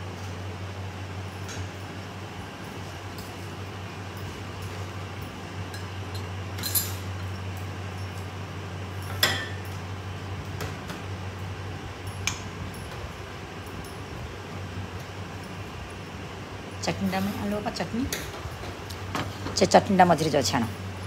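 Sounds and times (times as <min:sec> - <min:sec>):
dishes clinking: 0:05.7 - 0:07.1, 0:09.0 - 0:09.8.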